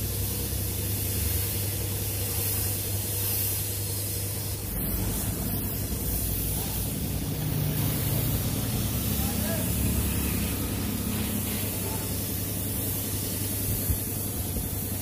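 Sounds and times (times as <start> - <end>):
paint spray gun hissing: 0.0 - 15.0
low hum: 4.5 - 9.1.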